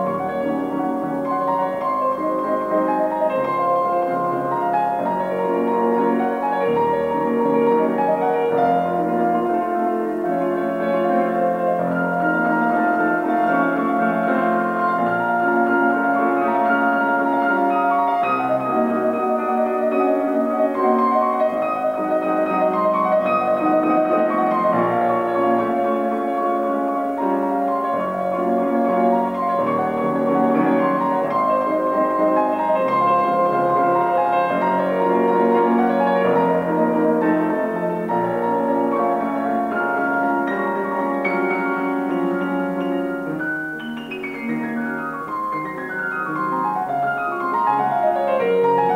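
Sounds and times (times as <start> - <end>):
solo piano playing a waltz: 0.0 - 48.9.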